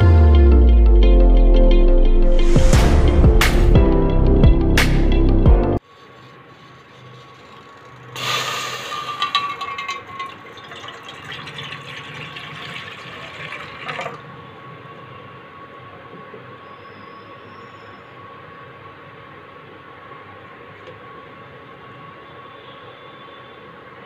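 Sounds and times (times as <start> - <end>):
water pouring into metal pot: 7.6 - 14.2.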